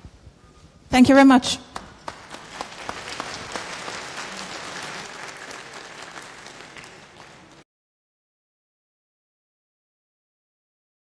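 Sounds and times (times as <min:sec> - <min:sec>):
audience applauding: 0:01.8 - 0:07.6.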